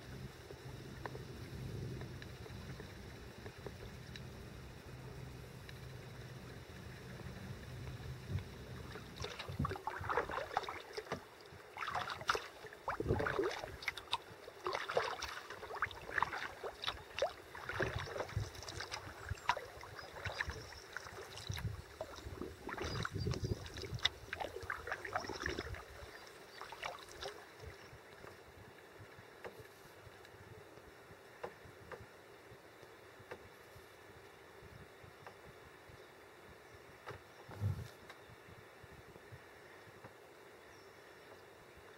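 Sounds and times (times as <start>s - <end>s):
water lapping along hull: 0.0s - 41.9s
paddle splashing in water: 8.8s - 28.4s.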